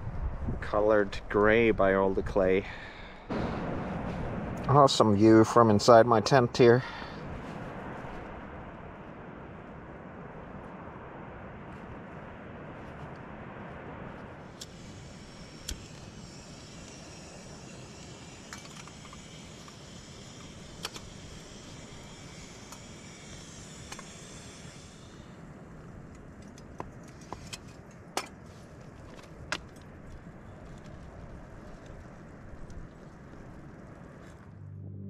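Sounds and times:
outdoor background noise: 0:00.0 - 0:35.0
camping gear rustling: 0:26.0 - 0:34.5.

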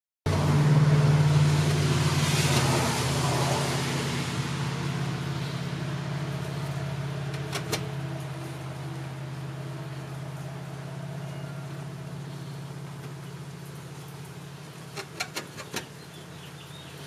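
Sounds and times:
rush of noise: 0:00.3 - 0:06.0
low mechanical hum: 0:00.3 - 0:17.0.

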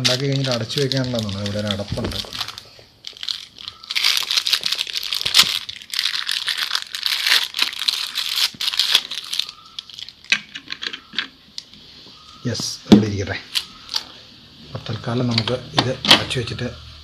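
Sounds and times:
plastic wrapping crinkling and tearing: 0:00.0 - 0:10.9, 0:13.5 - 0:14.2.

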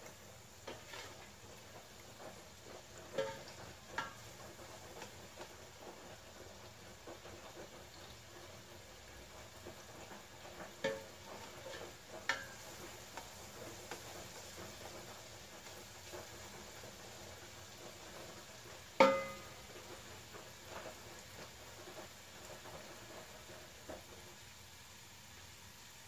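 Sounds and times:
metal spoon stirring in pot: 0:00.0 - 0:08.2, 0:09.0 - 0:14.2, 0:19.0 - 0:19.6
garlic and onion sizzling: 0:00.0 - 0:26.0.

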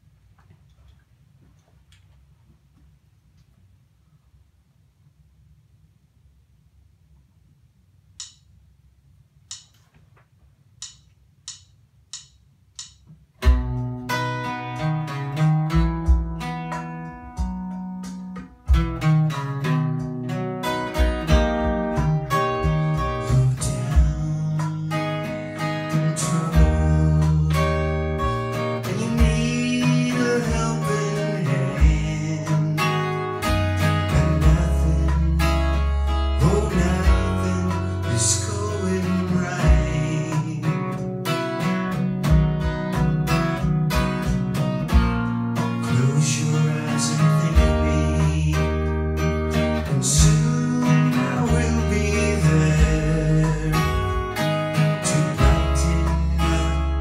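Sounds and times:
acoustic guitar strummed: 0:13.4 - 0:57.0
man singing: 0:22.0 - 0:41.0, 0:45.8 - 0:49.2, 0:49.8 - 0:57.0.

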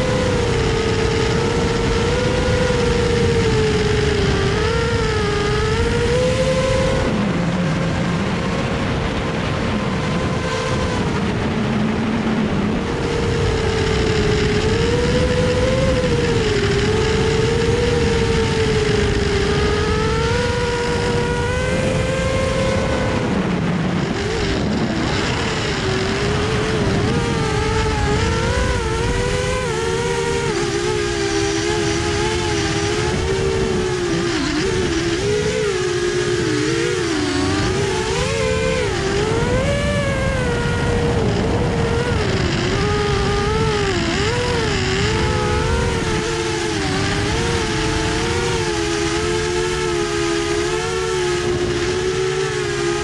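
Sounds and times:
drone propellers whining: 0:00.0 - 0:53.0.

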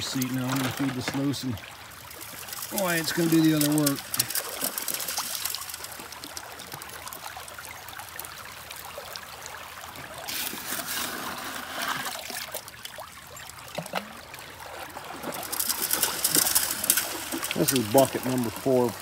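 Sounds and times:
gravel tipped into sluice: 0:00.0 - 0:07.6, 0:10.2 - 0:12.7, 0:14.7 - 0:19.0
water running through sluice box: 0:00.0 - 0:19.0.

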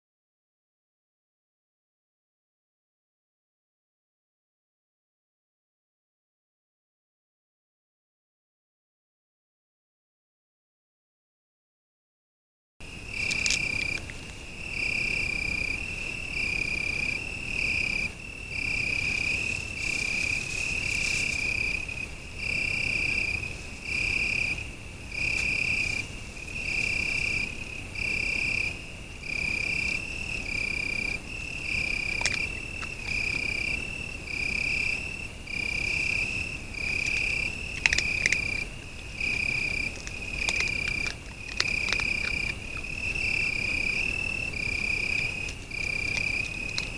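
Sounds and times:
cricket trilling: 0:12.8 - 0:46.9.

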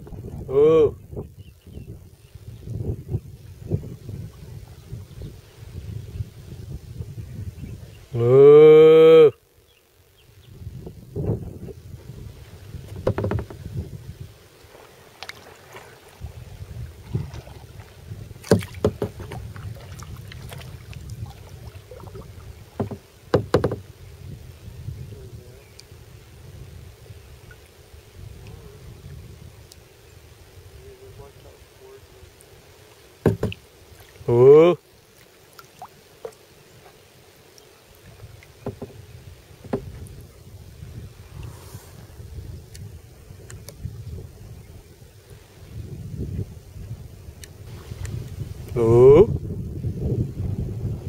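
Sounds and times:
faint water noise: 0:00.0 - 0:51.0
paddle splashing and knocking hull: 0:12.0 - 0:24.0, 0:32.8 - 0:34.4, 0:35.0 - 0:41.6
light knocks on kayak: 0:12.8 - 0:13.7, 0:18.4 - 0:19.6, 0:22.8 - 0:23.8, 0:33.2 - 0:33.6, 0:38.6 - 0:39.0, 0:39.6 - 0:40.1
water drips: 0:14.6 - 0:16.2, 0:35.1 - 0:36.4.

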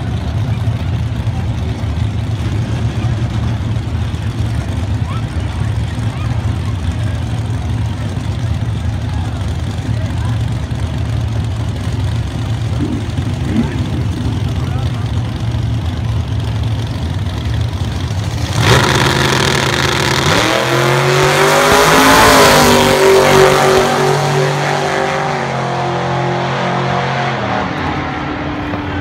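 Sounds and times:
drag car engines idling: 0:00.0 - 0:20.4
drag cars launching at full throttle: 0:00.5 - 0:29.0.

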